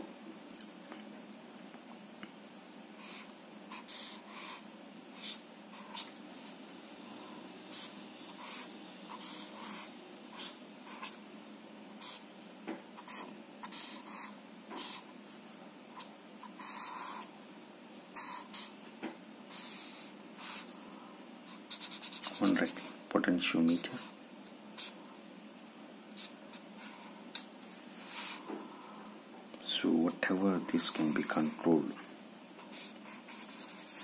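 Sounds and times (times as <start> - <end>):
marker pen scratching on paper: 3.0 - 6.6, 7.7 - 11.2, 12.0 - 12.2, 13.0 - 15.4, 16.0 - 17.3, 18.2 - 20.8, 21.5 - 23.0, 24.8 - 25.0, 26.2 - 27.2, 30.6 - 31.7, 32.6 - 34.0.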